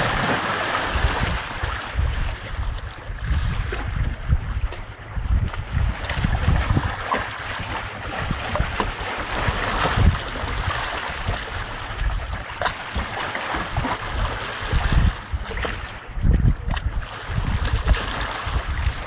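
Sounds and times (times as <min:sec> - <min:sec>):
stream water rushing: 0:00.0 - 0:01.8
wind rumble on microphone: 0:00.0 - 0:19.0.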